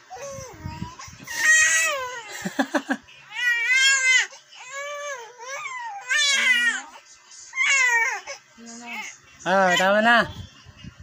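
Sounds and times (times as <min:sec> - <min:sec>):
infant crying: 0:00.1 - 0:02.6, 0:03.3 - 0:07.0, 0:07.6 - 0:10.2.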